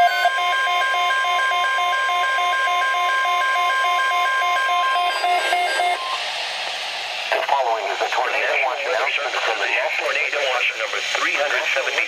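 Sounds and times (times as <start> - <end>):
pulsing alarm beeps: 0.0 - 6.2
steady warning tone: 0.0 - 6.4
radio static hiss: 5.1 - 12.0.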